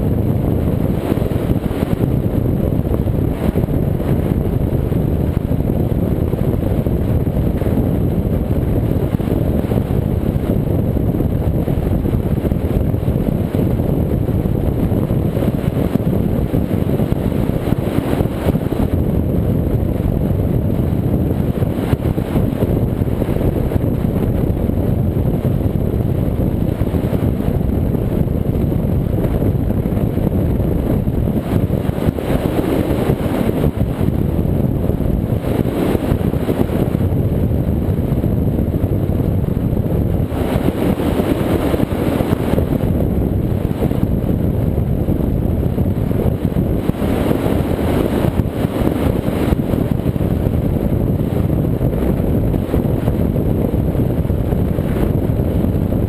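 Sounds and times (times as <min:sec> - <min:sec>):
rushing water and wind: 0:00.0 - 0:56.0.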